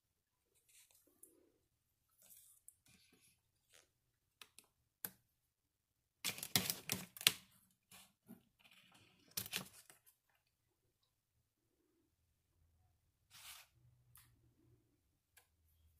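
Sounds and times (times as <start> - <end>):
contact paper crackling and clicking: 6.2 - 10.2.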